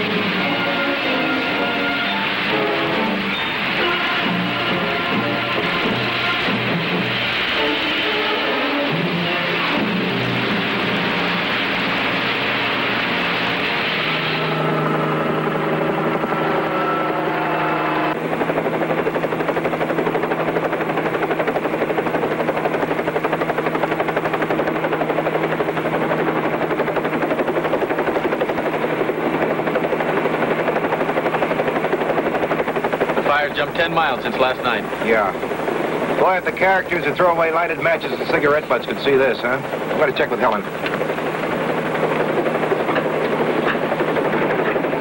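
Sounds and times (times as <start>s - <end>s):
music with sustained chords: 0.0s - 18.6s
helicopter rotor chatter: 0.0s - 45.0s.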